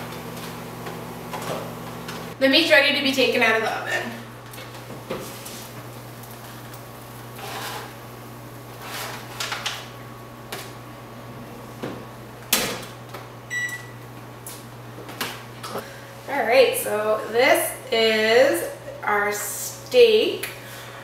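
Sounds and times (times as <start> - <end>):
microwave oven humming: 0.0 - 16.6.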